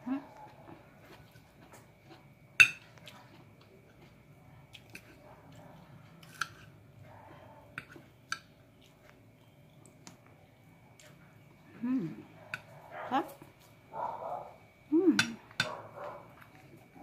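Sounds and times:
cutlery clinking against plate: 0:02.6 - 0:03.0.

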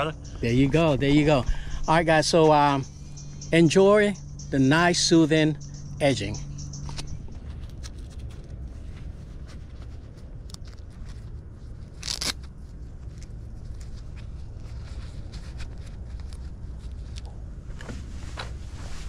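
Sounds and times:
steady low rumble: 0:00.0 - 0:19.0
velcro strap ripping: 0:10.4 - 0:14.2.

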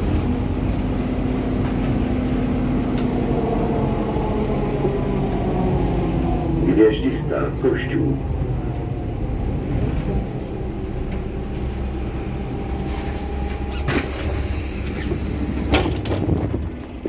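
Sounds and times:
bus engine rumble: 0:00.0 - 0:17.0
air hiss of pneumatic doors: 0:12.8 - 0:15.8
knocks and clatter: 0:15.0 - 0:17.0.

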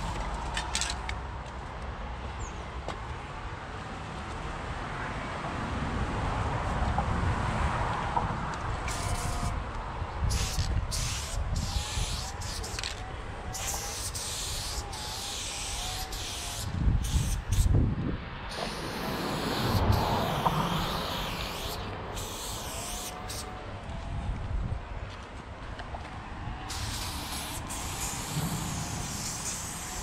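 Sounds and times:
spray paint can hissing: 0:08.8 - 0:09.6, 0:10.3 - 0:17.7, 0:18.5 - 0:23.5, 0:26.7 - 0:30.0.

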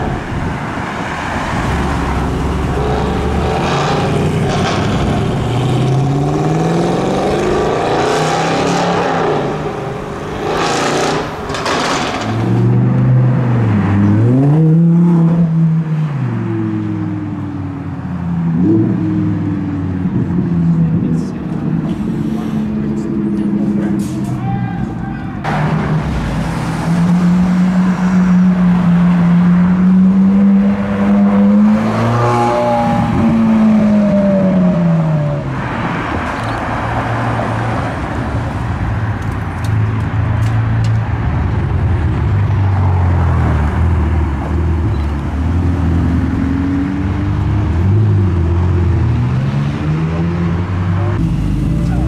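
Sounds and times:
cars idling and pulling away: 0:00.0 - 0:52.0
sports car engines driving by: 0:00.0 - 0:52.0
car engine passing: 0:25.4 - 0:39.1.

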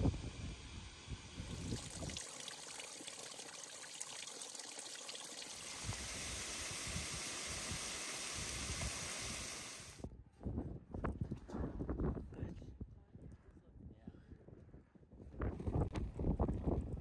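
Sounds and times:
stream trickling over rocks: 0:01.4 - 0:10.0.

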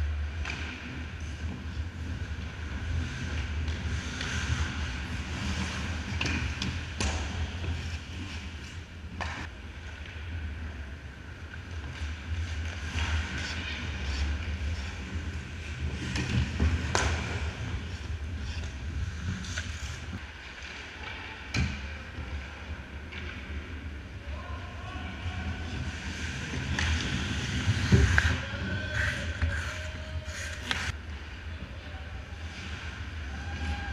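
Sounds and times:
skates scraping ice: 0:00.0 - 0:31.2
hockey sticks and puck knocking: 0:16.0 - 0:17.5, 0:26.6 - 0:31.0.

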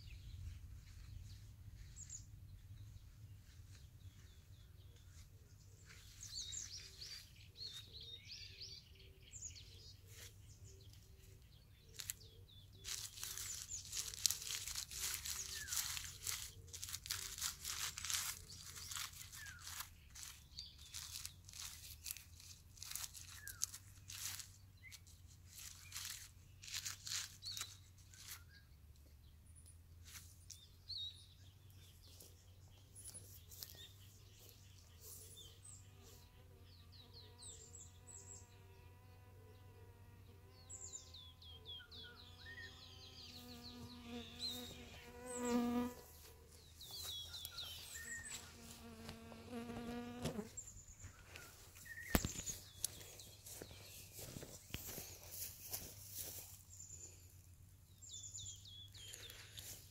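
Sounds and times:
pine branches rustling: 0:10.0 - 0:28.5, 0:31.8 - 0:35.3, 0:44.2 - 0:57.3, 0:58.8 - 0:59.9
insect buzzing: 0:42.2 - 0:46.3, 0:47.8 - 0:50.8.

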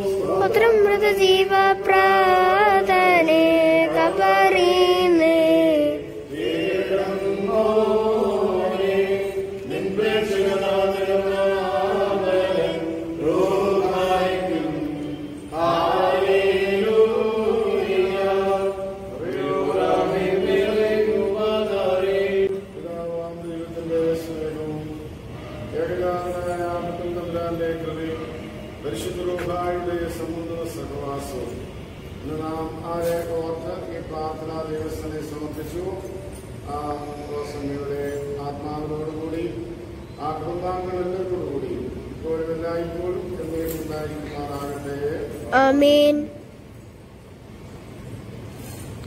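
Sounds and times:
person chanting prayer: 0:00.0 - 0:31.6.

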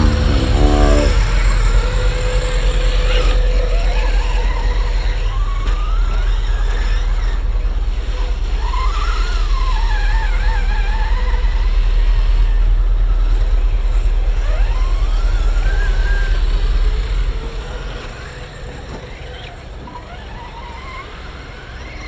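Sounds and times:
steady low rumble: 0:00.0 - 0:06.2, 0:07.1 - 0:18.8
electric toy truck motor whining: 0:00.0 - 0:22.0.

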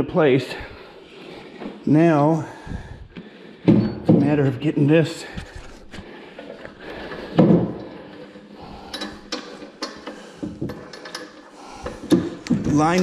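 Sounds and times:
metal parts knocking and clicking: 0:07.1 - 0:13.0.

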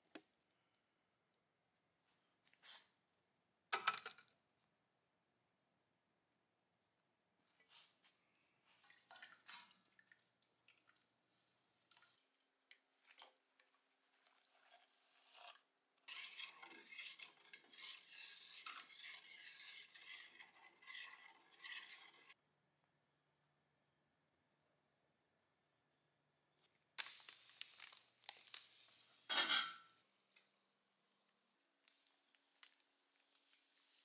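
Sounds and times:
rod stirring in enamel pot: 0:13.0 - 0:22.4.

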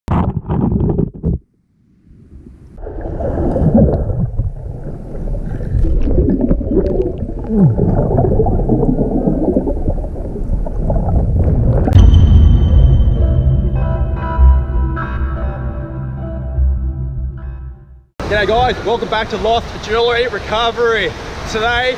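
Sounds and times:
underwater bubbling and gurgling: 0:00.1 - 0:01.4, 0:02.2 - 0:12.0.

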